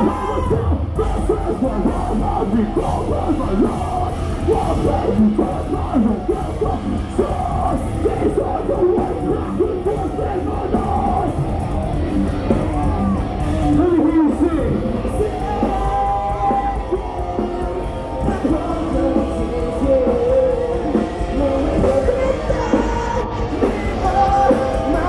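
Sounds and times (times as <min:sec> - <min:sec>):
person yelling vocals: 0:00.0 - 0:02.0
live metal band playing: 0:00.0 - 0:25.0.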